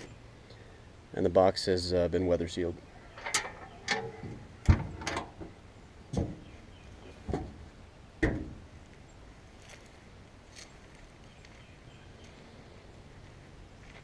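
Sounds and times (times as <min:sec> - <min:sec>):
storage box lid clunking shut: 0:03.2 - 0:05.5.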